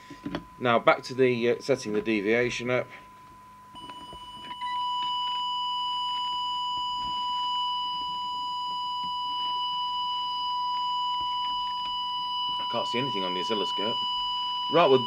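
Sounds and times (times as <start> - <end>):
steady test tone beep: 0.3 - 15.0.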